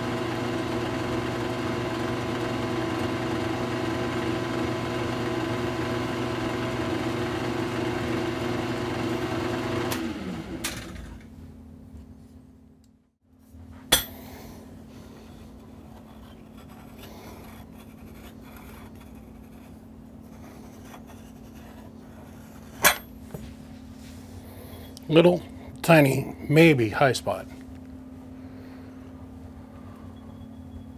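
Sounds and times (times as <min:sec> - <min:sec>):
drill press motor running: 0:00.0 - 0:11.3
quiet steady hum: 0:11.2 - 0:30.9
metal straightedge tapping metal: 0:13.9 - 0:14.2, 0:22.8 - 0:23.1.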